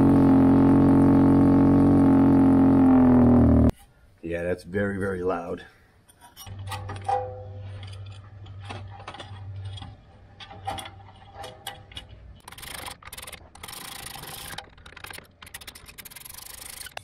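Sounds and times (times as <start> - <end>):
metal scraping on metal: 6.1 - 13.0
screws ticking as turned: 12.4 - 17.0.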